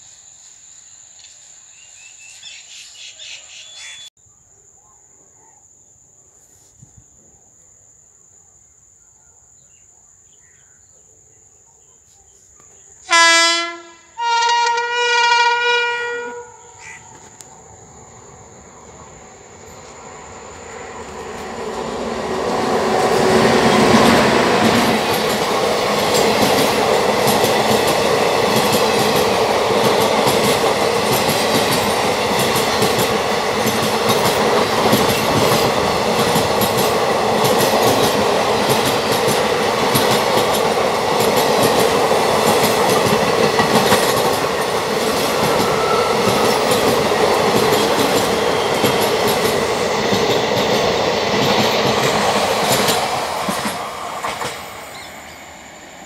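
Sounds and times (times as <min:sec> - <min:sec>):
train wheels rumbling on rail: 0:13.6 - 0:56.0
clickety-clack at rail joints: 0:21.0 - 0:55.3.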